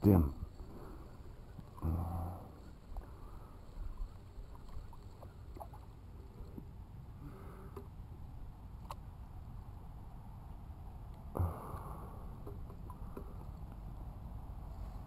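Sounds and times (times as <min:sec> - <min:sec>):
water lapping against kayak hull: 0:02.4 - 0:06.7.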